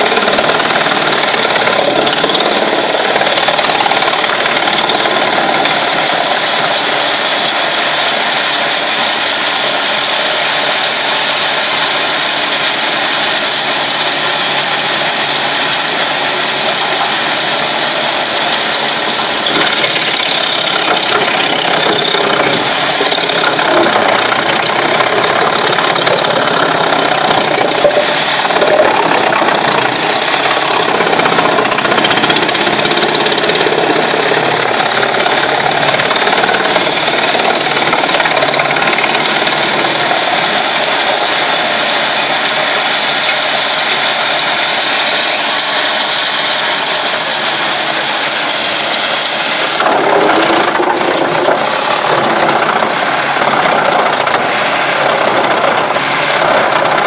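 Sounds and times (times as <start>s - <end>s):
wood chipper chipping logs: 0.0s - 57.0s.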